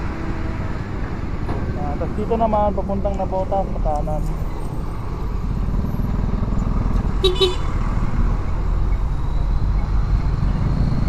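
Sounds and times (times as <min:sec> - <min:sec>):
vehicle horn toot: 0:07.2 - 0:07.7.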